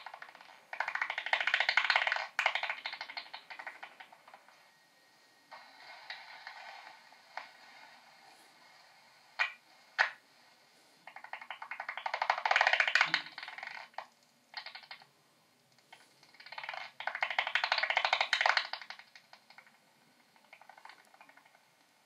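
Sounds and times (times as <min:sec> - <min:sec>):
bat echolocation clicks and buzzes: 0:00.0 - 0:04.4, 0:11.1 - 0:15.1, 0:15.9 - 0:19.8, 0:20.4 - 0:21.6.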